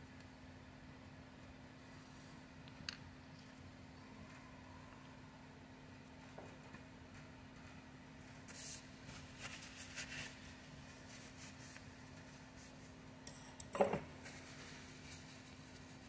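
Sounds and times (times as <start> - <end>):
faint steady hum: 0.0 - 16.0
paper towel rustling: 7.6 - 13.0, 14.2 - 16.0.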